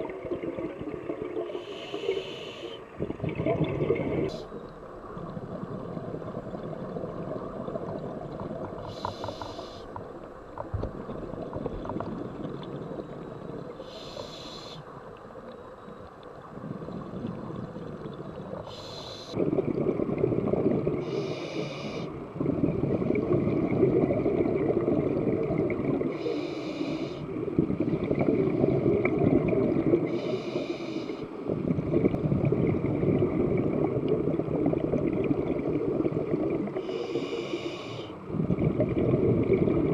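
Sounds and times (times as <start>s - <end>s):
exhaled air bubbling: 0.0s - 14.8s, 16.4s - 39.9s
regulator inhalation hiss: 1.5s - 2.9s, 8.8s - 9.9s, 13.8s - 14.9s, 18.7s - 19.4s, 21.0s - 22.1s, 26.1s - 27.3s, 30.1s - 31.4s, 36.8s - 38.2s.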